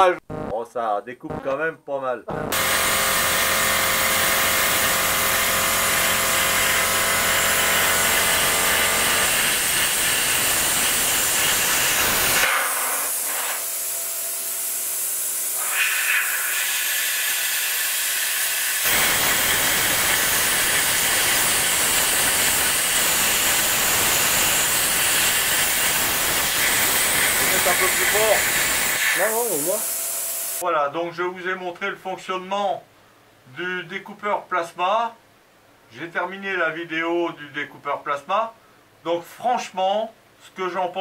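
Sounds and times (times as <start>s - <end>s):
plasma cutter hissing: 2.5s - 30.6s.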